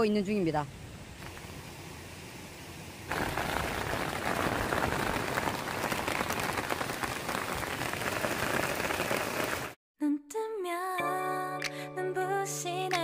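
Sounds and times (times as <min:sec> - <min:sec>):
patter of falling water: 0:01.2 - 0:09.8.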